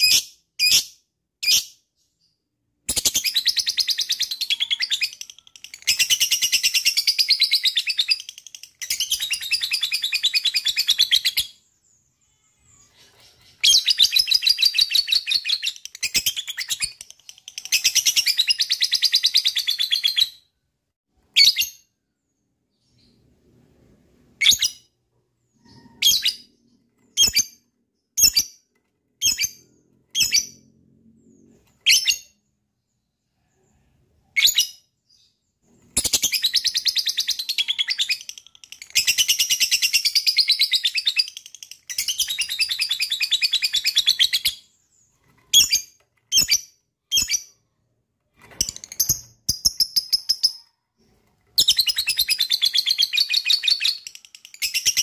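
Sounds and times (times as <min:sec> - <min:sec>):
short sharp bird chirps: 0:24.2 - 0:28.5.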